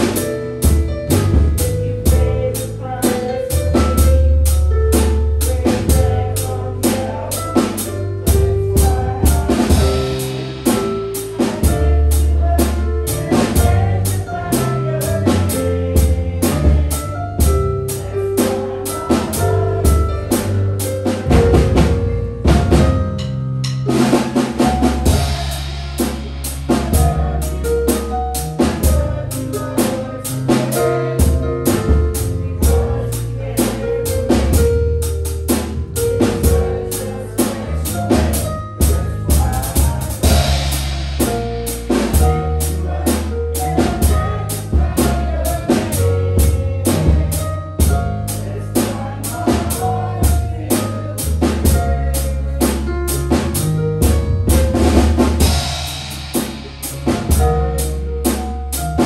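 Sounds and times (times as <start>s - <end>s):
bass guitar: 0.0s - 59.0s
drum kit beat: 0.0s - 59.0s.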